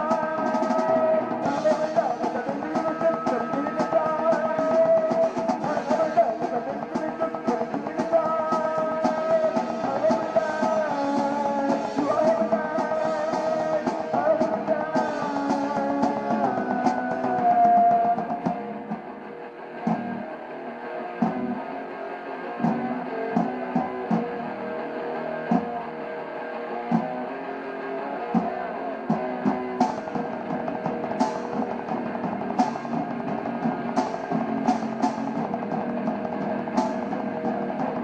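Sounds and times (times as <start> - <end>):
drum hits: 0.0 - 19.1, 28.4 - 38.0
electric guitar: 0.0 - 38.0
rock band playing live: 0.0 - 38.0.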